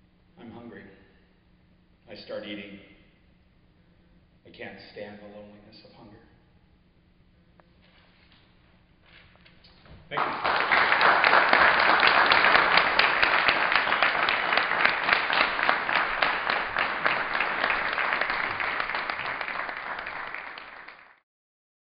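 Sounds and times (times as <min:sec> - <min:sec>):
audience applauding: 0:10.1 - 0:21.2.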